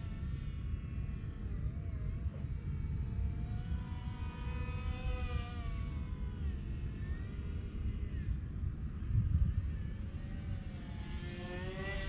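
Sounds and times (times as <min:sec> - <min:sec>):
rc plane motor whining: 0:03.0 - 0:12.0
wind on microphone: 0:08.7 - 0:10.5.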